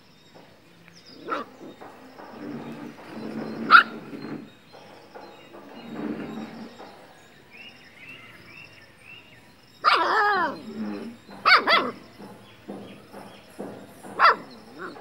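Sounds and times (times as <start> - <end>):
dog whining yelp: 9.8 - 12.0
puppy yipping: 11.4 - 12.0, 14.2 - 15.0.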